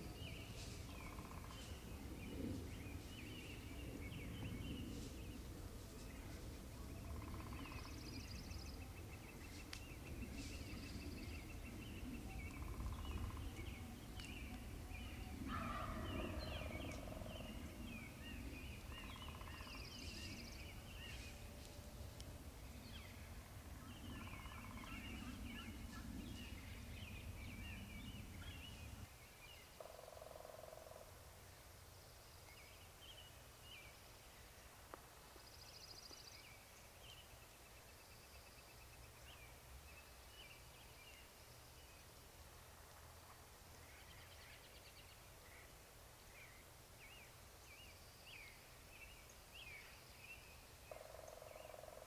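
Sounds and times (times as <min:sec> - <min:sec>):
birds chirping: 0:00.0 - 0:30.8
low steady rumble: 0:00.0 - 0:35.7
wild turkeys calling: 0:15.5 - 0:17.3.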